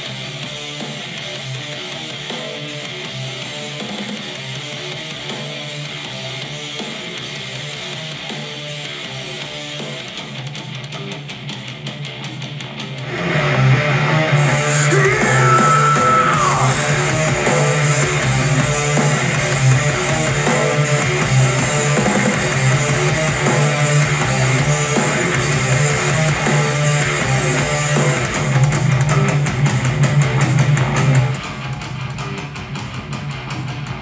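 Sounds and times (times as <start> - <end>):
rock song through speaker: 0.0 - 34.0.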